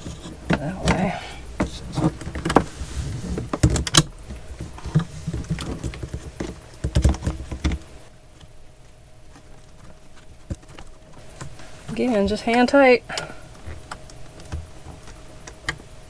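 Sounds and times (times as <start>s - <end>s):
hose fittings clicking and knocking: 3.4s - 7.9s.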